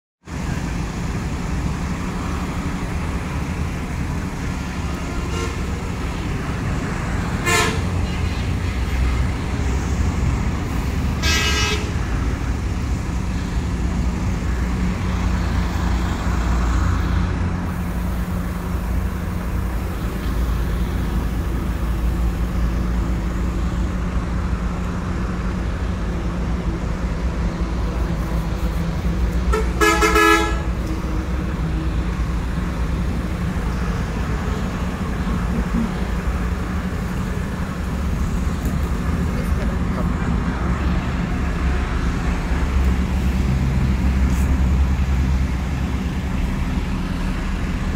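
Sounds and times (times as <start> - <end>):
bus engines idling: 0.2 - 47.9
vehicle horn toots: 5.1 - 5.7, 7.4 - 7.9, 11.2 - 11.9, 29.5 - 30.7.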